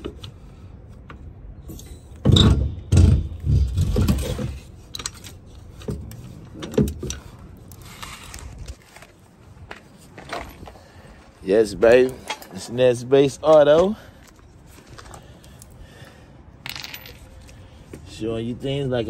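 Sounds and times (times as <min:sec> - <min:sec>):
metal objects clanking and scraping: 0:01.6 - 0:08.6, 0:12.1 - 0:12.8.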